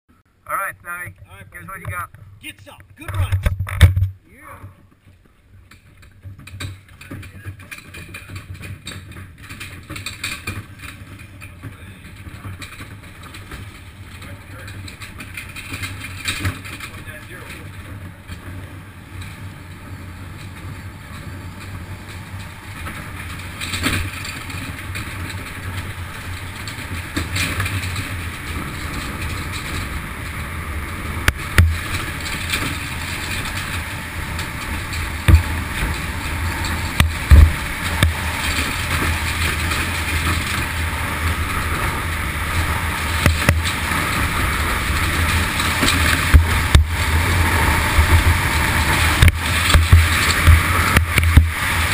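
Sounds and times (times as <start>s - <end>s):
sled runners rumbling on ice: 0.9s - 51.9s
sled knocking over bumps: 1.6s - 51.9s
rushing air: 29.8s - 51.9s.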